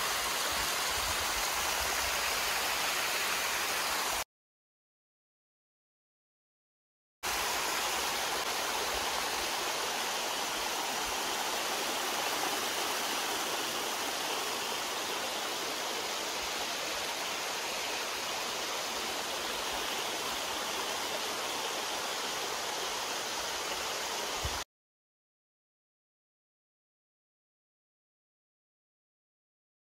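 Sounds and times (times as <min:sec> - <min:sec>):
water rushing over rocks: 0:07.3 - 0:24.6.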